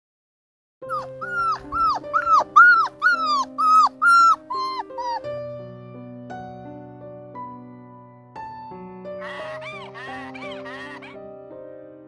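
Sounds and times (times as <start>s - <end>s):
puppy yipping: 0.9s - 5.3s
soft background music: 0.9s - 12.0s.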